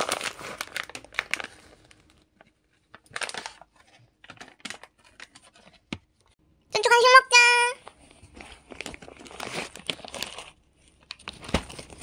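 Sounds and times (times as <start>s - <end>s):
plastic bag crinkling: 0.0s - 5.6s, 8.2s - 12.0s.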